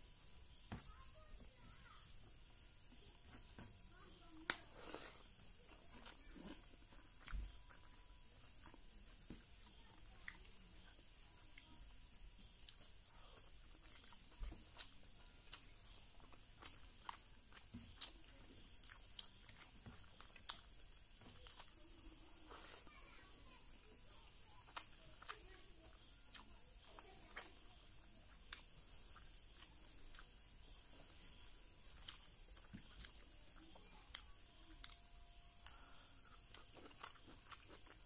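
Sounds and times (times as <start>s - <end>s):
crickets chirping: 0.0s - 38.0s
wet chewing smacks: 35.6s - 38.0s.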